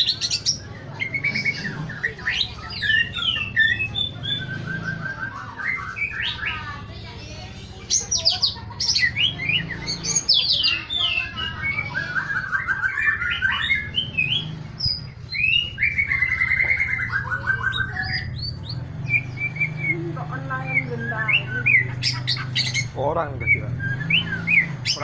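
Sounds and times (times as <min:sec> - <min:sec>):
bird singing whistles and trills: 0:00.0 - 0:06.9, 0:08.9 - 0:25.0.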